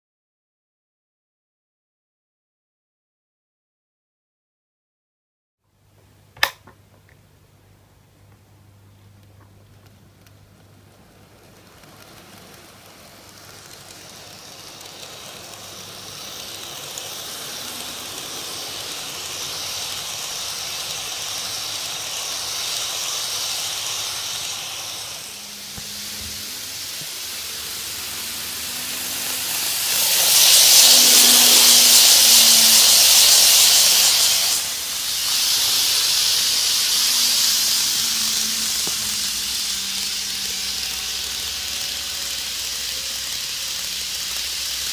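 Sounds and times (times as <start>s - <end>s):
model train whirring: 9.6s - 44.9s.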